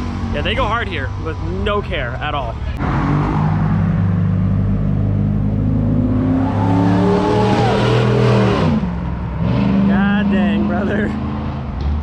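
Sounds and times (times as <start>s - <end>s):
car engine accelerating past: 2.8s - 12.0s.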